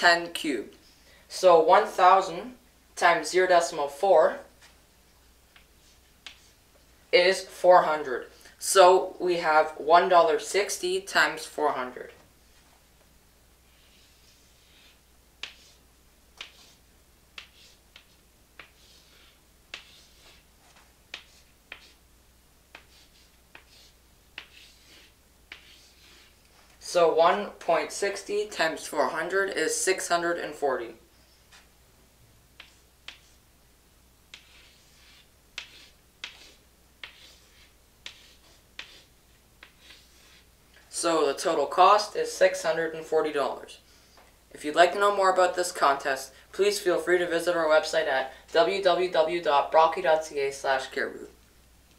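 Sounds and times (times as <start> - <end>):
chalk scratching on chalkboard: 5.5 - 6.6, 13.6 - 16.8, 17.4 - 22.0, 22.7 - 26.9, 32.6 - 33.4, 34.3 - 40.5
chalk tapping on chalkboard: 5.5 - 6.6, 13.7 - 15.8, 16.4 - 22.0, 22.7 - 26.4, 32.6 - 33.4, 34.3 - 40.4.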